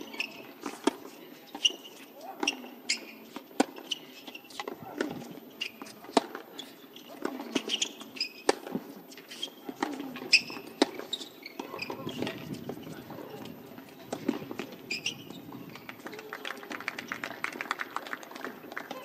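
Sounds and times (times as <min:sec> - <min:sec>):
tennis ball bouncing: 0:02.4 - 0:06.5, 0:07.1 - 0:09.0, 0:09.7 - 0:17.2
murmur of voices: 0:11.6 - 0:19.0.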